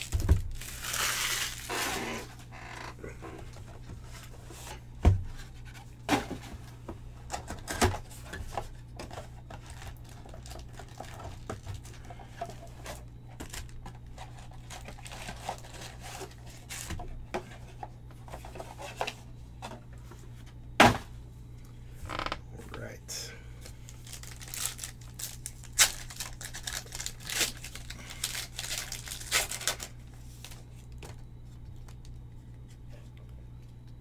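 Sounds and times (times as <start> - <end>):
cardboard scraping and rustling: 0.0 - 2.6, 12.5 - 21.0
steady low hum: 0.0 - 34.0.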